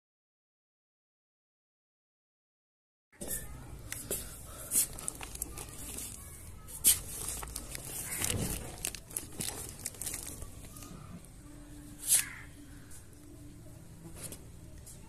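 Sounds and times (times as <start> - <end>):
cardboard box crackling and rustling: 4.9 - 10.9.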